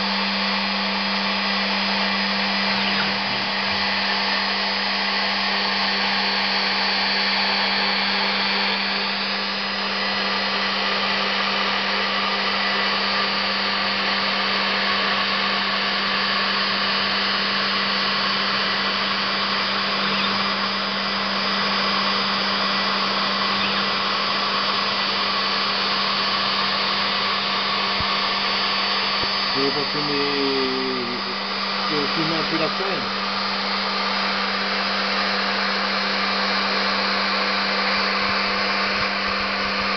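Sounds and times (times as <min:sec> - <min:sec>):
machine spindle humming: 0:00.0 - 0:39.9
brief wavering tones: 0:02.7 - 0:03.8, 0:20.0 - 0:20.4, 0:23.6 - 0:23.9.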